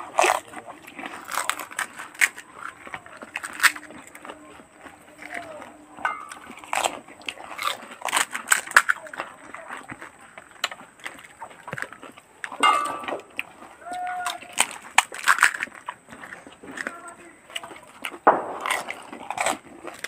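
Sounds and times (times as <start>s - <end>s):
crisp shells cracking: 0.0s - 4.4s, 5.1s - 20.0s
chewing: 0.0s - 20.0s
water sloshing: 12.2s - 13.8s.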